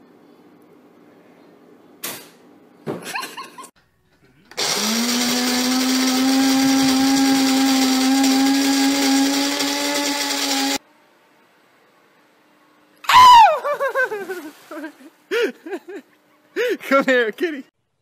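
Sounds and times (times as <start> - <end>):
electric blender motor running: 4.6 - 10.8.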